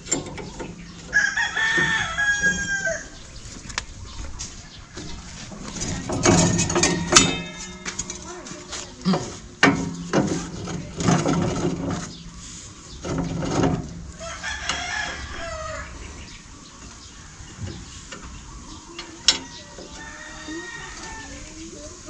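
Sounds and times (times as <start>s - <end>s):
hand tools clanking on metal: 0.0s - 1.2s, 5.0s - 12.3s, 13.0s - 15.4s
rooster crowing: 1.1s - 3.2s, 6.5s - 7.8s, 14.1s - 16.0s, 19.3s - 21.5s.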